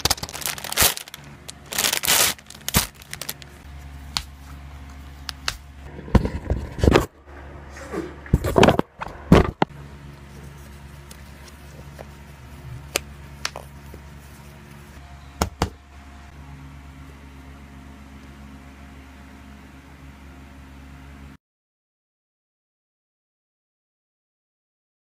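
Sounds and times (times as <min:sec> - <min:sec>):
low room hum: 0:00.0 - 0:21.4.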